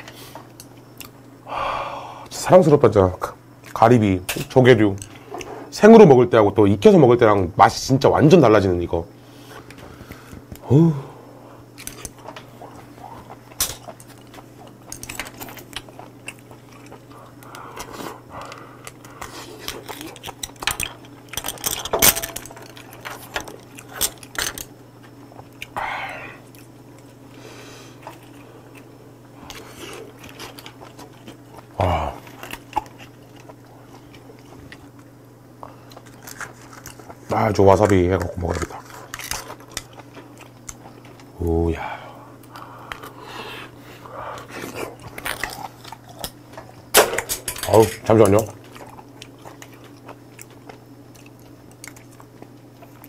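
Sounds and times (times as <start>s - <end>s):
steady low hum: 0.0s - 53.0s
person humming: 10.6s - 11.2s, 31.8s - 32.2s
chewing and biting: 11.7s - 21.7s, 25.0s - 25.8s, 27.9s - 41.4s, 44.3s - 46.9s, 48.4s - 53.0s.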